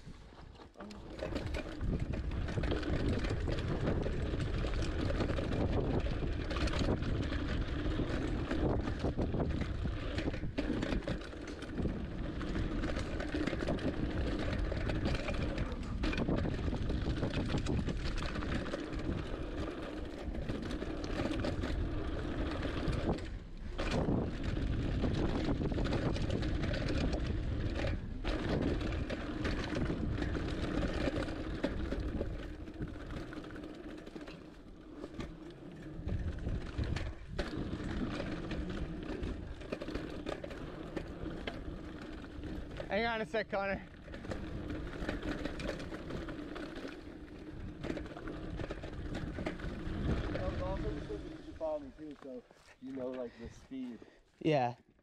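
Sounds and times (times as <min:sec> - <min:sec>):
tyres rolling over dirt and rocks: 0:00.2 - 0:53.6
bike rattling and knocking: 0:00.4 - 0:54.2
wind rushing over microphone: 0:01.7 - 0:11.1, 0:13.5 - 0:19.4, 0:21.5 - 0:33.1, 0:36.0 - 0:38.8, 0:47.5 - 0:51.6.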